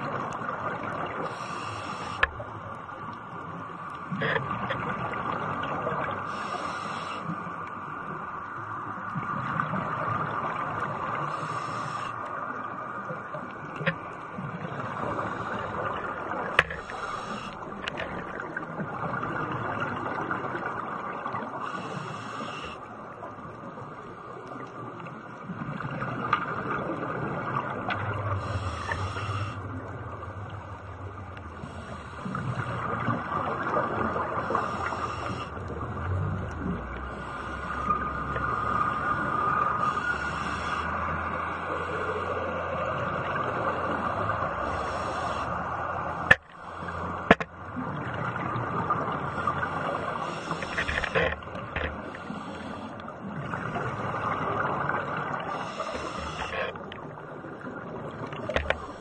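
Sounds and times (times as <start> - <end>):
muffled underwater hiss: 0.0 - 59.0
scuba bubbles hissing: 1.1 - 2.3, 6.2 - 7.3, 11.1 - 12.2, 14.8 - 17.8, 21.5 - 22.8, 28.4 - 29.6, 31.6 - 35.6, 48.4 - 56.8.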